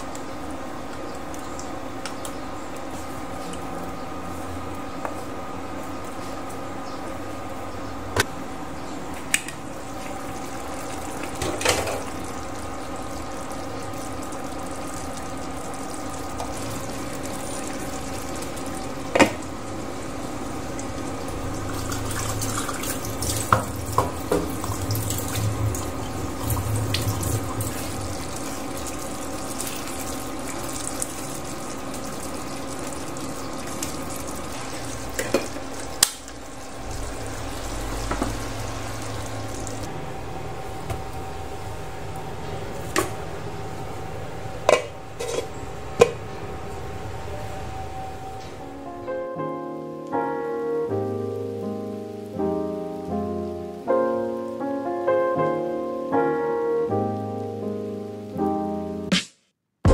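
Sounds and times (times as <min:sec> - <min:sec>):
cooker hum: 0:00.0 - 0:49.3
stew bubbling in a pan: 0:09.6 - 0:47.1.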